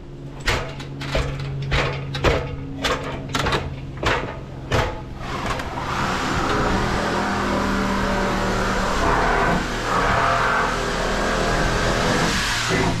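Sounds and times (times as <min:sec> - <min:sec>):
engine running: 0:00.0 - 0:13.0
footsteps on metal ladder rungs: 0:00.4 - 0:05.2.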